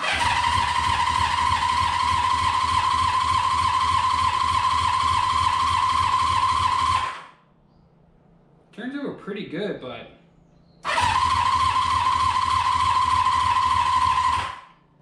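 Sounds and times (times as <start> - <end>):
engine starter cranking: 0.0 - 7.3, 10.8 - 14.7.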